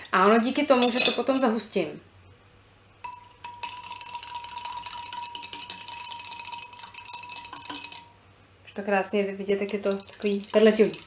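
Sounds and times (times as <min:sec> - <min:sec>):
spoon clinking against beaker: 0:03.0 - 0:08.2, 0:09.5 - 0:11.0.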